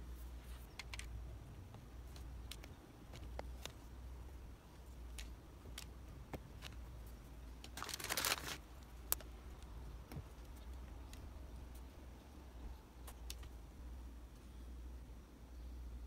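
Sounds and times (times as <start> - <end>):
paper rustle: 7.6 - 8.7.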